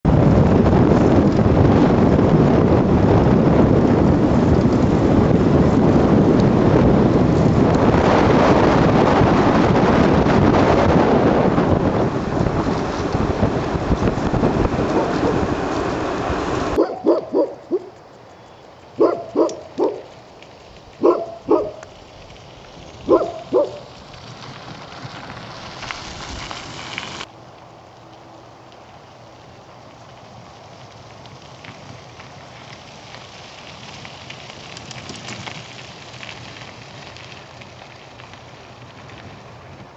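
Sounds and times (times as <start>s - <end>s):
wind buffeting microphone: 0.0s - 17.8s, 19.0s - 27.3s
dog barking: 16.8s - 17.9s, 19.0s - 20.1s, 21.0s - 21.9s, 23.1s - 23.9s.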